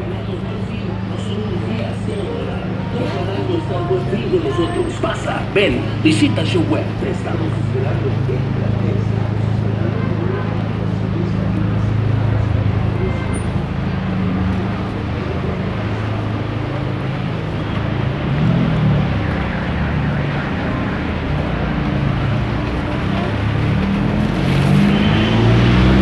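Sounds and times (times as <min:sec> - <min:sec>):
vehicle engines running: 0:00.0 - 0:26.0.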